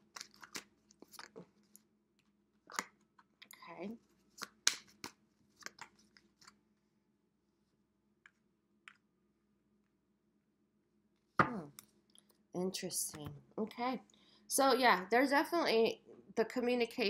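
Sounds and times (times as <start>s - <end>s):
cards being shuffled: 0.0s - 1.8s, 4.1s - 6.6s.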